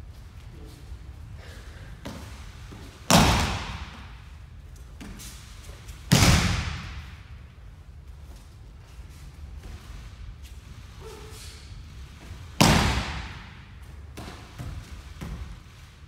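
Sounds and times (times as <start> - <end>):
body slapping onto mats: 2.0 - 4.1, 12.6 - 13.6.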